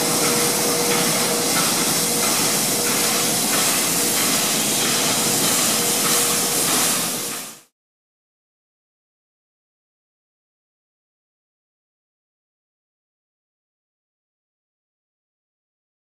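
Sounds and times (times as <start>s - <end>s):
steam hissing: 0.0s - 7.7s.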